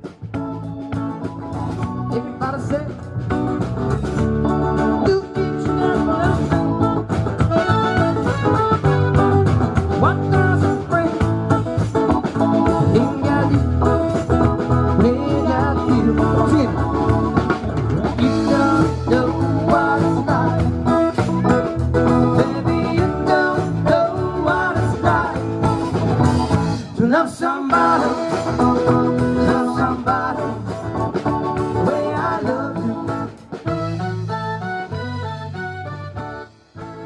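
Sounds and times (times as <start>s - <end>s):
drum kit: 0.0s - 37.0s
keyboard: 0.0s - 37.0s
person singing lead vocal: 2.1s - 3.1s, 4.8s - 6.9s, 9.9s - 11.6s, 12.7s - 14.2s, 14.9s - 26.1s, 26.8s - 33.6s.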